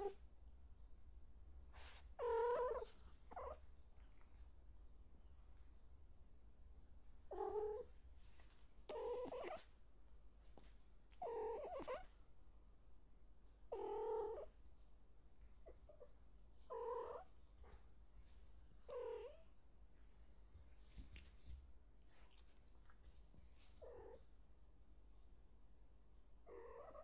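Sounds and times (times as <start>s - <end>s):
cat meowing: 8.9s - 9.6s.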